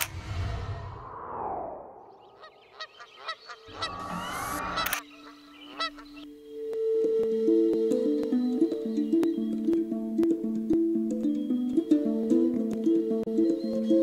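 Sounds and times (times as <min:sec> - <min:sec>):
honking call: 0:02.4 - 0:06.2
plucked-string music: 0:05.8 - 0:14.0.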